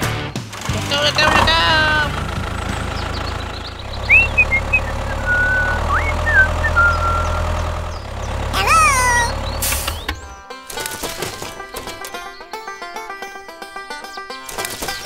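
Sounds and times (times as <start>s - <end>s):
vehicle engine rumbling: 0.0s - 12.4s
rising-then-falling call: 3.0s - 7.9s
short whistling chirps: 4.0s - 7.5s.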